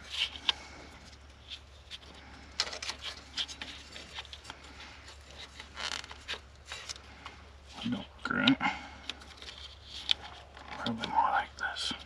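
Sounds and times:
hands rubbing wire: 2.9 - 7.2.

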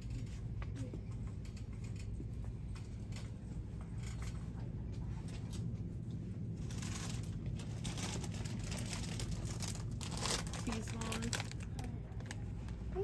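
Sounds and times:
light clicks and rattles: 0.0 - 9.8
shop background hum: 0.0 - 13.0
plastic packaging crinkling: 6.7 - 12.5.

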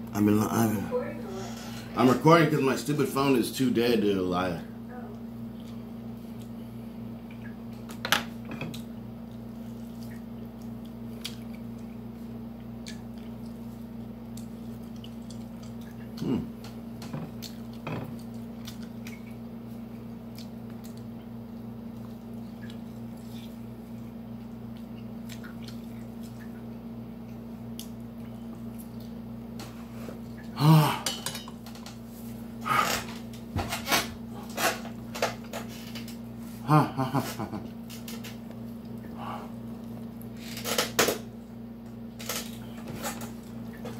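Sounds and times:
steady low hum: 0.0 - 43.9
wet chewing: 8.7 - 29.3.

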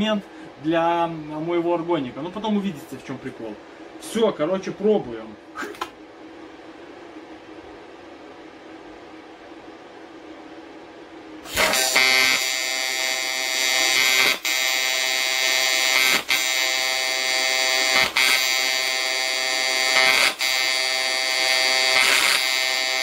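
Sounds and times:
welding arc buzzing: 11.4 - 23.0.

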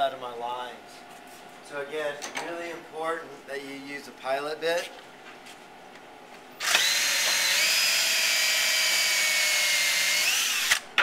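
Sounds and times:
cordless drill whining: 6.6 - 10.8.

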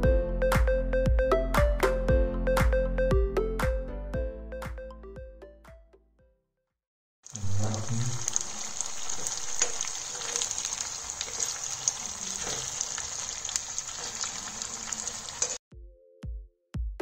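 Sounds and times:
oil sizzling and popping in a pan: 7.3 - 15.6.

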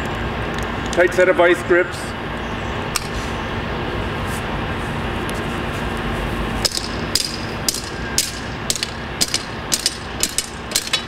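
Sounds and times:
hammer striking metal: 6.6 - 11.0.

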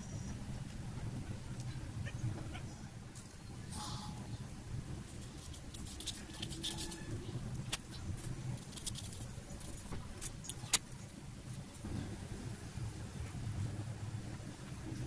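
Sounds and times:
foam pieces clicking and scratching: 5.0 - 11.8
wire pushed through foam: 5.1 - 10.7.

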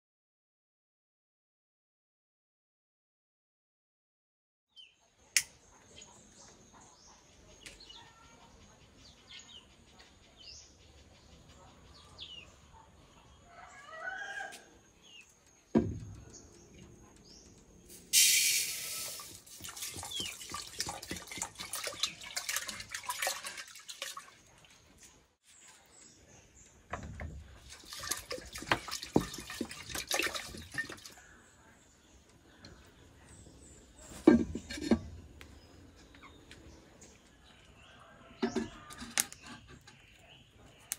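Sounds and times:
rice pouring into a pot: 18.1 - 21.5
water pouring into a pot: 18.1 - 24.4, 27.6 - 31.2.

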